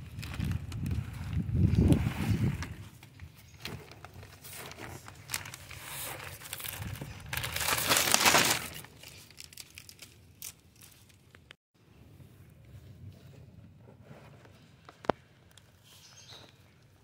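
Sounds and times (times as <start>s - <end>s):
plastic wrap crinkling: 0.0s - 11.6s.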